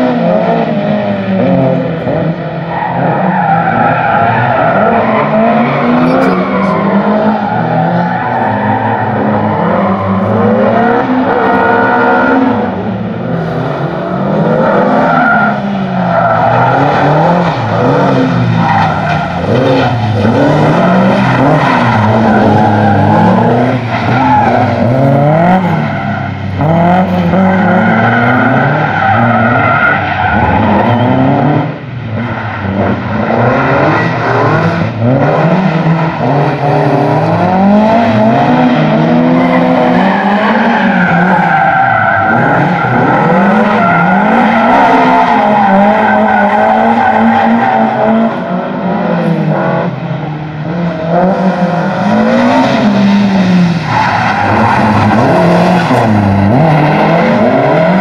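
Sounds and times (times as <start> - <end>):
car engine revving hard: 0.0 - 50.0, 50.6 - 58.0.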